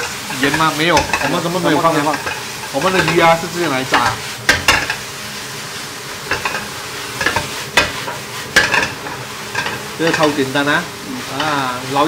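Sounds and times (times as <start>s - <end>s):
fish deep-frying: 0.0s - 12.0s
food sizzling in a wok: 0.0s - 12.0s
spatula scraping a wok: 0.0s - 12.0s
spatula knocking against pan: 3.9s - 5.0s, 6.3s - 10.3s.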